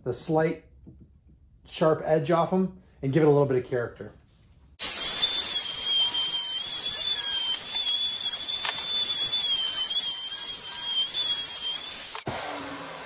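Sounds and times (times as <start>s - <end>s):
electric router cutting wood: 4.8s - 13.0s.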